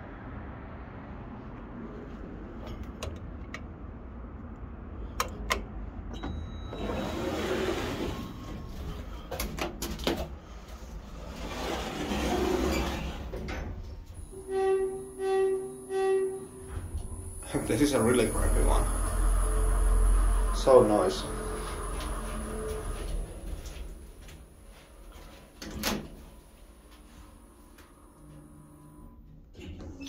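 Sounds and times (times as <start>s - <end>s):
elevator doors sliding with rumble: 1.1s - 30.0s
short pitched tones: 14.2s - 23.6s
steady high tone: 14.2s - 24.6s.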